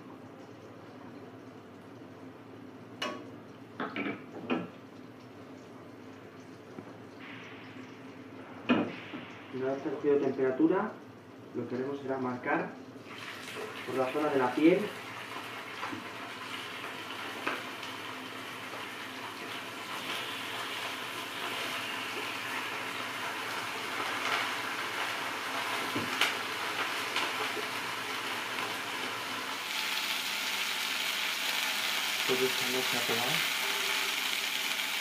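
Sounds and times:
oil sizzling in a frying pan: 0:13.0 - 0:35.0.

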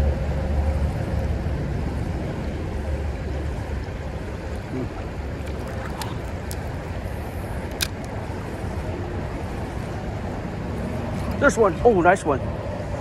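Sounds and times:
creek water rushing: 0:03.7 - 0:08.4
sharp clicks: 0:05.4 - 0:06.9, 0:07.6 - 0:08.1.

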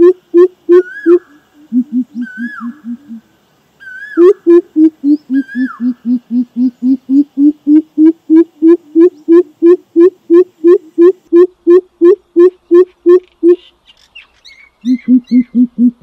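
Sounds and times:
bird hooting call: 0:00.0 - 0:13.7, 0:14.8 - 0:16.0.

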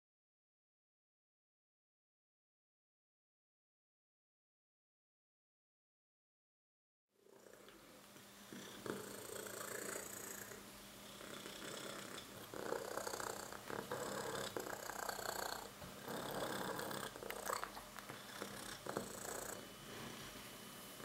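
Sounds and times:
cat purring: 0:07.2 - 0:20.4.

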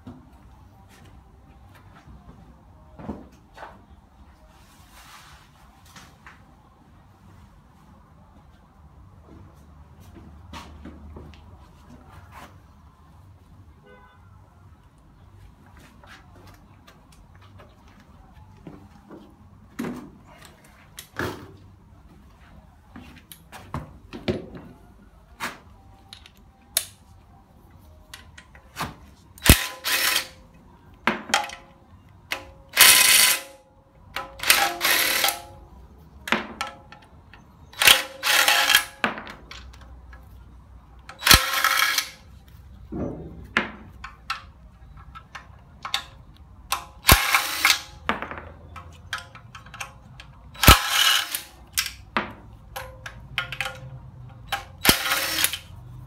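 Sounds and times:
ratchet wrench ratcheting: 0:29.4 - 0:30.4, 0:32.8 - 0:33.6, 0:34.4 - 0:35.5, 0:37.8 - 0:39.0, 0:41.2 - 0:42.2, 0:47.0 - 0:48.0, 0:50.6 - 0:52.0, 0:52.8 - 0:55.8
metal clicks of bolts and tools: 0:31.3 - 0:35.6, 0:36.2 - 0:40.3, 0:41.0 - 0:42.6, 0:43.9 - 0:56.0.

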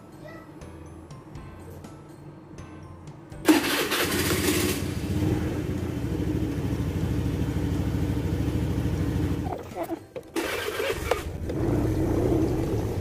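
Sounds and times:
motor scooter engine idling: 0:03.6 - 0:09.5.

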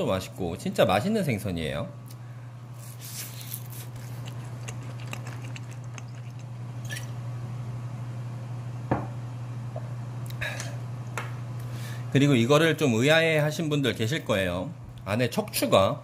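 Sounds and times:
steady low hum: 0:00.0 - 0:16.0
wet chewing sounds: 0:02.8 - 0:07.2.

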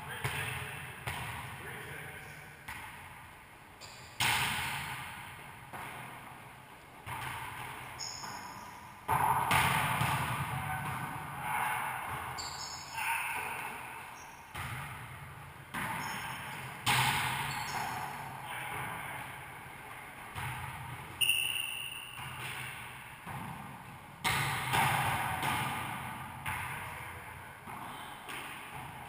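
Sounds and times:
volleyball hits echoing: 0:00.0 - 0:03.2, 0:03.8 - 0:29.0
sneakers squeaking on hardwood: 0:07.2 - 0:08.8, 0:12.4 - 0:14.8, 0:15.8 - 0:19.2, 0:20.4 - 0:22.8.

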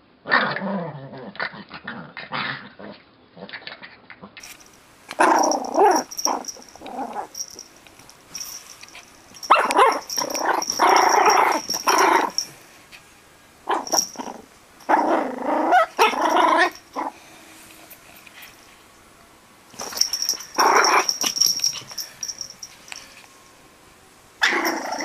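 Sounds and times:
puppy growling and yipping: 0:00.2 - 0:04.4, 0:05.1 - 0:07.6, 0:09.4 - 0:12.5, 0:13.6 - 0:17.2, 0:19.8 - 0:22.4, 0:24.4 - 0:25.0.

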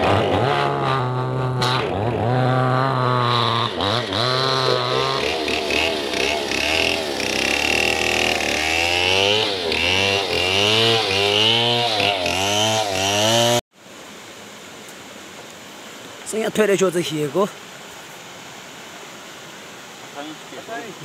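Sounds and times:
chainsaw cutting log: 0:00.0 - 0:13.6.

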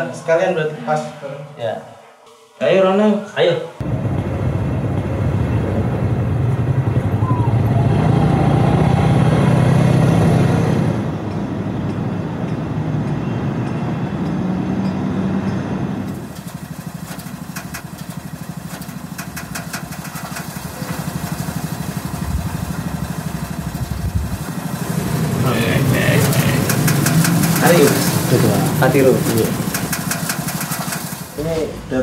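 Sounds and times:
small motorcycle engine running: 0:03.8 - 0:11.1, 0:16.0 - 0:31.5
sharp clicks: 0:26.2 - 0:28.3.

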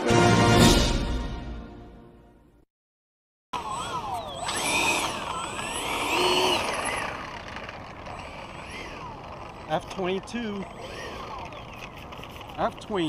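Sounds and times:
electric ducted fans whining: 0:03.6 - 0:13.0.

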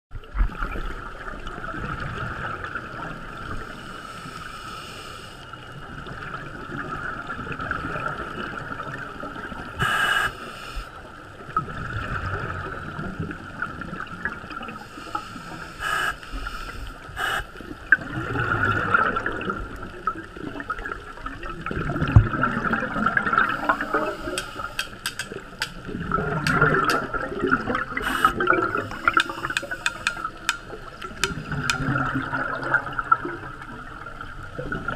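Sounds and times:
scuba bubbles gurgling underwater: 0:00.2 - 0:34.9
muffled underwater hiss: 0:02.8 - 0:12.7, 0:14.5 - 0:21.2, 0:22.0 - 0:34.9
sharp clicks: 0:24.3 - 0:25.8, 0:26.4 - 0:27.1, 0:28.9 - 0:31.9.

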